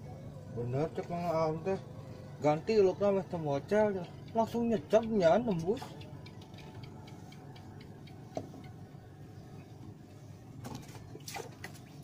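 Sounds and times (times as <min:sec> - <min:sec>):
boat motor droning: 0:00.0 - 0:12.0
sharp clicks and knocks: 0:04.0 - 0:08.8.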